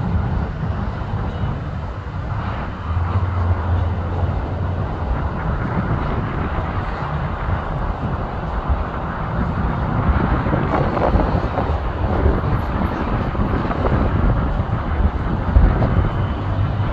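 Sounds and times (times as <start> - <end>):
jet engine rumble: 0.0 - 16.9
wind buffeting microphone: 0.0 - 16.9.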